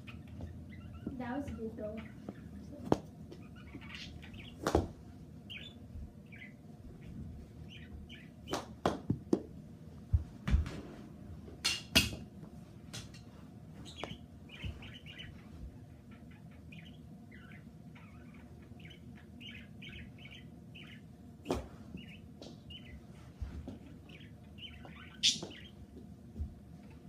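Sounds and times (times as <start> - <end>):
bird chirping: 0.0 - 2.8, 3.4 - 4.8, 5.5 - 8.6, 13.8 - 21.1, 22.0 - 23.0, 24.0 - 25.8.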